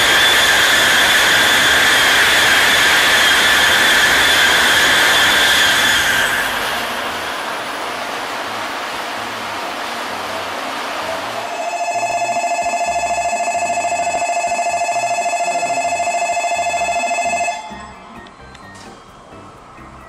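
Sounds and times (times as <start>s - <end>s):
passing train rushing: 0.0s - 20.0s
platform warning bell ringing: 11.3s - 20.0s.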